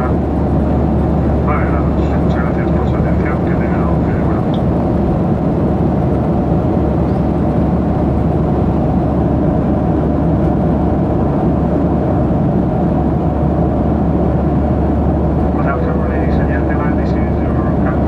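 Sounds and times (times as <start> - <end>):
airplane cabin engine rumble: 0.0 - 18.0.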